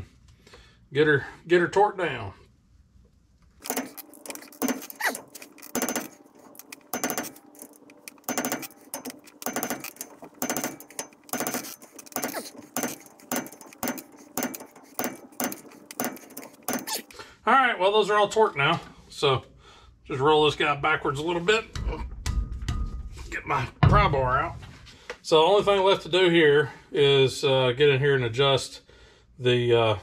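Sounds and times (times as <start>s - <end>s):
torque wrench ratchet clicking: 3.6s - 17.1s.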